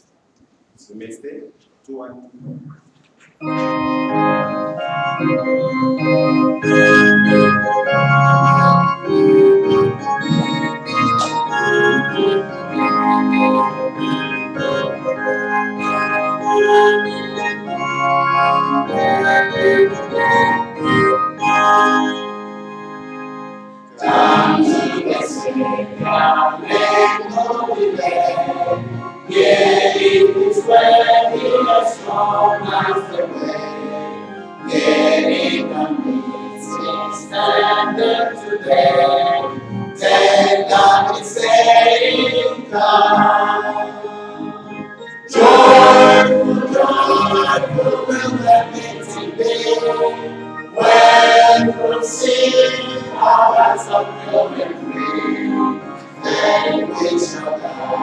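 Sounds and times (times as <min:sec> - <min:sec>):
organ playing: 0:03.4 - 0:58.0
congregation singing a hymn: 0:23.9 - 0:58.0.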